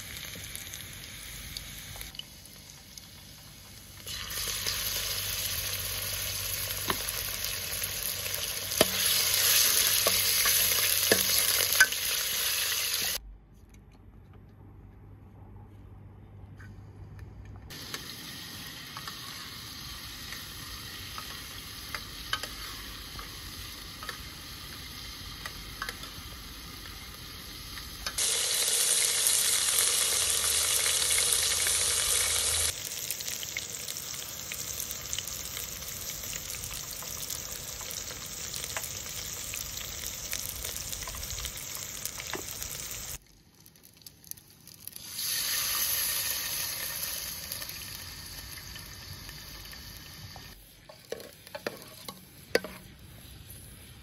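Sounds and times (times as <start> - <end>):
meat sizzling in hot oil: 0.0 - 13.2, 17.7 - 53.0.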